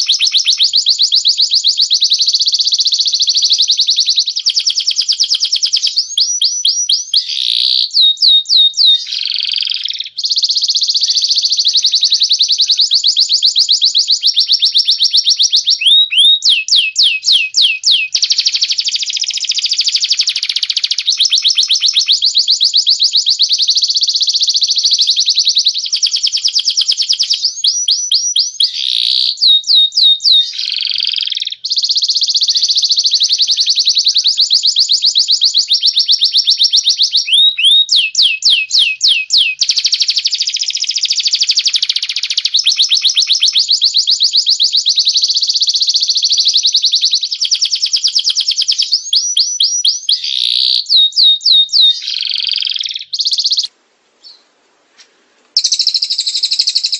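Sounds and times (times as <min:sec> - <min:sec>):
songbird trills: 0:00.0 - 0:54.5, 0:55.6 - 0:56.9.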